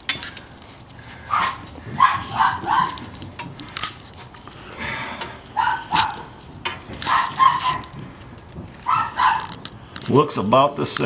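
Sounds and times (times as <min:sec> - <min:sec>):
dog barking: 0:01.3 - 0:03.1, 0:05.6 - 0:06.3, 0:07.0 - 0:07.8, 0:08.8 - 0:09.6.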